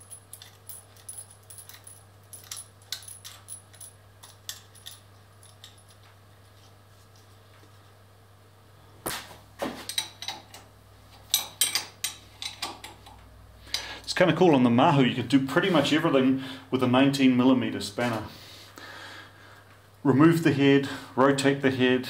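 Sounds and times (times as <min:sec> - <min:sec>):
spanner clanking on metal: 0:00.0 - 0:06.0, 0:09.8 - 0:13.2
light metallic clicks and clinks: 0:00.0 - 0:06.2
faint steady hum: 0:00.0 - 0:22.0.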